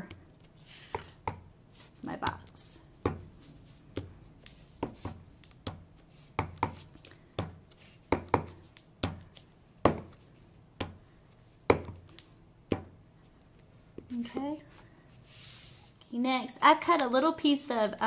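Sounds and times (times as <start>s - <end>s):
rubber stamp knocking on card: 7.4s - 9.2s, 11.6s - 12.1s.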